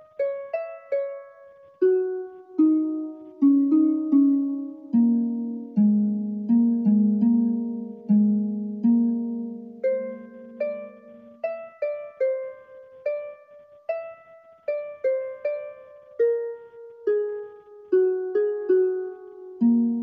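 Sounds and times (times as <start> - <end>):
slow melody of single notes: 0.0 - 20.0.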